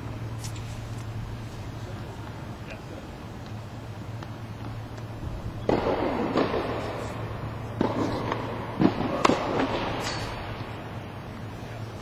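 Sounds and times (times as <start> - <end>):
tennis ball bouncing on court: 3.4 - 10.1
tennis ball struck by rackets: 5.6 - 10.7.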